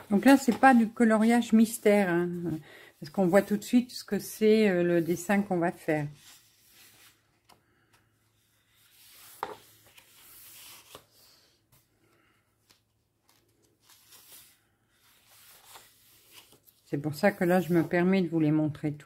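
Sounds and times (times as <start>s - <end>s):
paper pages rustling: 0.0s - 1.8s, 6.2s - 11.9s, 12.6s - 18.1s.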